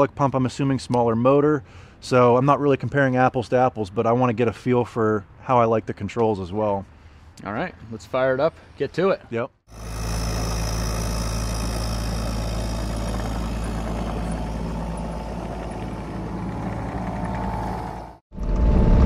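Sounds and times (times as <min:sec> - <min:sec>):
diesel engine running: 0:09.7 - 0:18.2
faint whine: 0:09.7 - 0:18.2.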